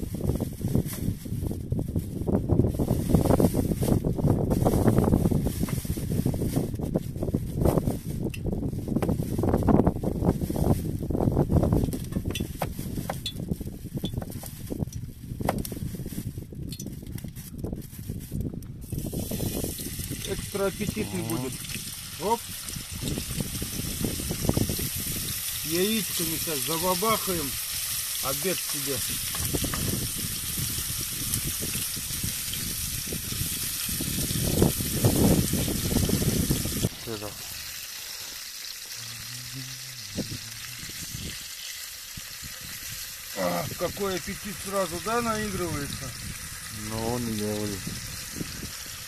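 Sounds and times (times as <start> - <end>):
meat sizzling in a frying pan: 18.8 - 39.1, 40.0 - 49.0.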